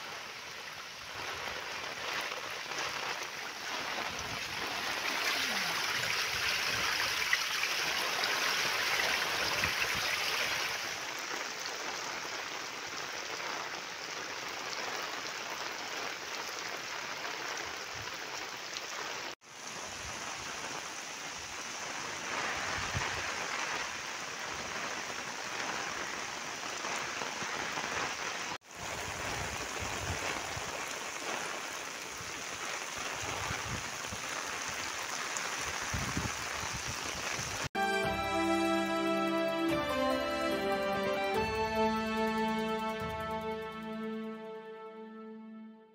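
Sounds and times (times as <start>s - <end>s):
runoff water flowing: 0.0s - 43.7s
heavy rain falling: 0.0s - 44.2s.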